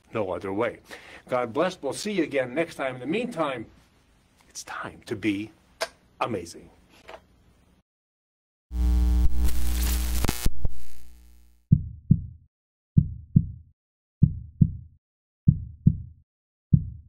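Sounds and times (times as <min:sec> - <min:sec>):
heartbeat-like thumping beat: 0:11.7 - 0:12.4, 0:13.0 - 0:17.0.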